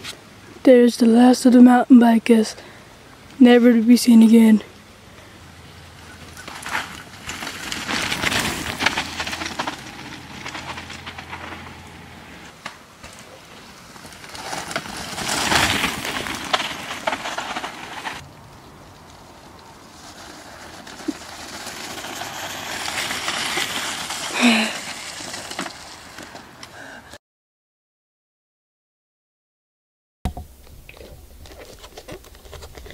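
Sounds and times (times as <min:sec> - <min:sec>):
bike tyres rolling over dirt: 0:04.9 - 0:27.0
bike rolling over wet grass: 0:05.8 - 0:26.8.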